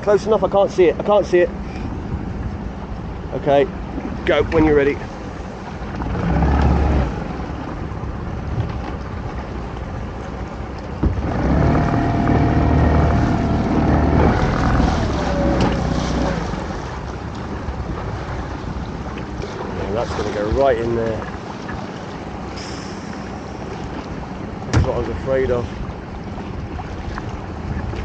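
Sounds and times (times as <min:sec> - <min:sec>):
boat engine running: 0:00.0 - 0:28.0
engine whine: 0:01.6 - 0:20.3
wind on microphone: 0:11.0 - 0:28.0.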